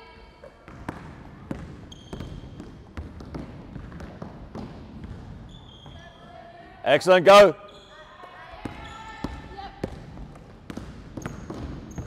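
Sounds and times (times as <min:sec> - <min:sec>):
basketballs bouncing on wooden floor: 0:00.6 - 0:06.0, 0:08.5 - 0:12.0
shoe squeak: 0:01.8 - 0:02.6, 0:05.4 - 0:06.4, 0:07.6 - 0:09.6, 0:11.1 - 0:12.0.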